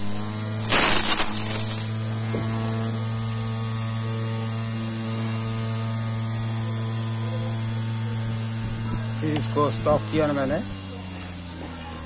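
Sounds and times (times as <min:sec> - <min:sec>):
electric motor humming: 0:00.0 - 0:12.0.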